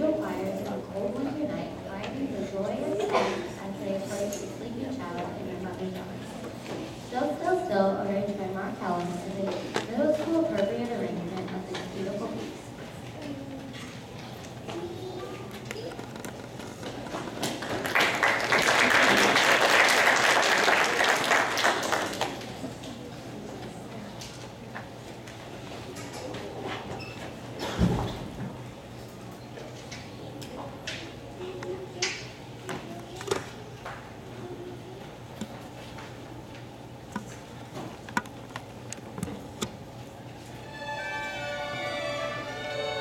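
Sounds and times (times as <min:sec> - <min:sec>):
audience applauding: 0:17.5 - 0:22.6.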